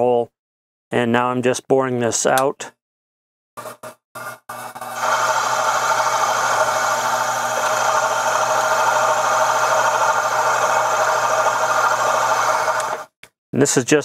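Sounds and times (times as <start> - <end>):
milling machine hum and whine: 5.0 - 13.1.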